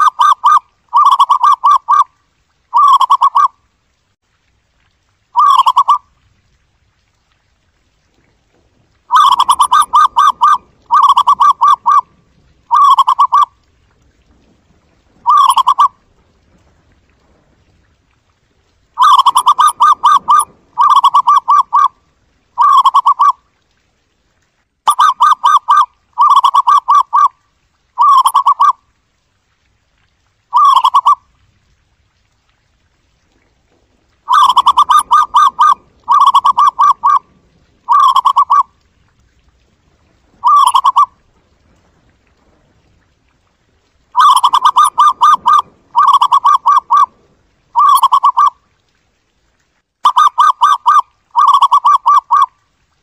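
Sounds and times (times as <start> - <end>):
dove cooing: 0.0 - 2.0, 2.7 - 3.5, 5.4 - 6.0, 9.1 - 12.1, 12.7 - 13.5, 15.2 - 15.9, 19.0 - 21.9, 22.6 - 23.4, 24.9 - 27.3, 28.0 - 28.7, 30.5 - 31.2, 34.3 - 37.2, 37.9 - 38.7, 40.4 - 41.1, 44.2 - 47.1, 47.8 - 48.6, 50.1 - 52.5.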